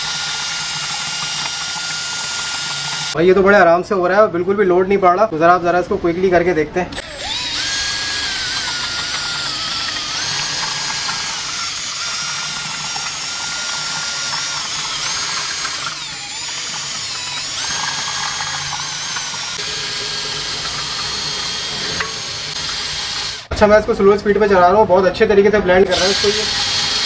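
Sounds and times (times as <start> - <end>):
cordless drill whining: 0.0 - 3.2, 6.9 - 23.5, 25.9 - 27.0.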